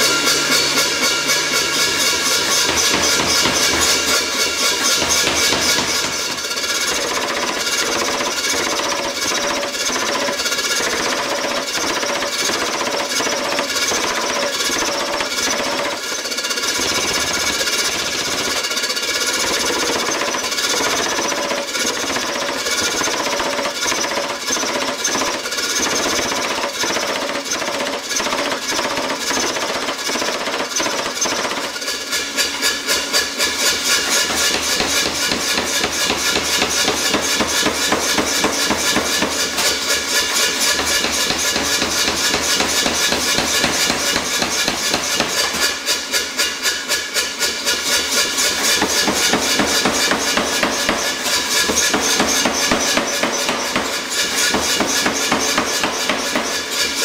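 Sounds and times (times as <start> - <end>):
power hammer pounding hot steel: 0.0 - 57.0.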